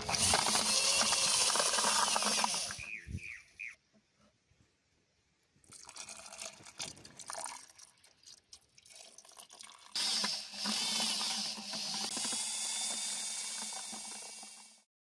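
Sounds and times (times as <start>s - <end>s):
paddle mixer churning plaster: 0.0s - 2.8s, 10.0s - 14.9s.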